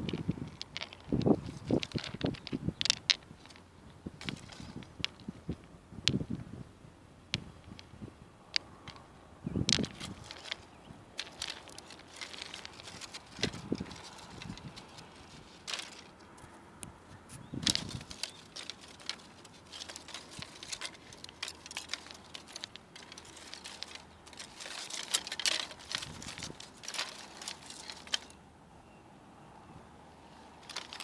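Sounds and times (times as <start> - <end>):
dry plant stems crackling on stones: 0.0 - 6.4, 7.3 - 16.5, 17.3 - 28.4, 30.6 - 31.0.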